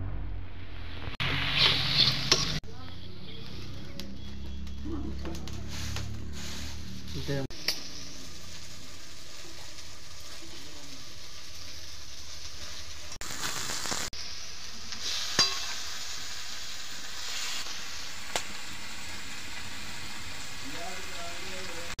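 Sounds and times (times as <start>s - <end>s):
onions sizzling in oil: 0.8s - 22.0s
metal spatula scraping: 1.4s - 2.6s, 15.0s - 15.8s.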